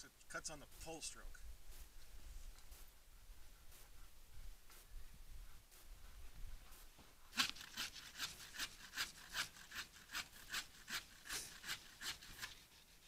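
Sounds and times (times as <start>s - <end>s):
hand saw cutting branch: 7.3s - 13.0s.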